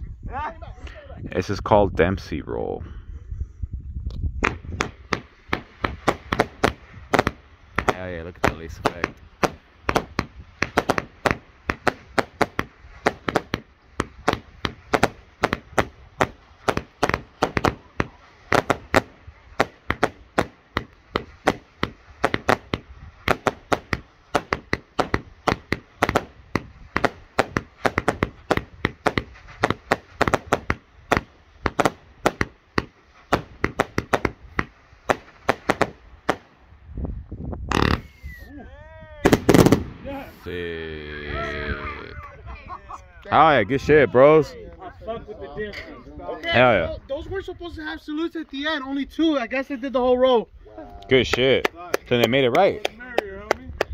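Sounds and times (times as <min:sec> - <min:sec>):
firework reports: 0:04.4 - 0:36.8, 0:37.7 - 0:42.1.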